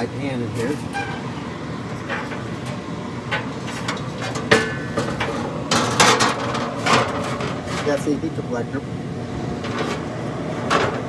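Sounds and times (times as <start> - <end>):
steady low hum: 0.0 - 11.0
metal pan knocking and scraping: 2.0 - 7.9.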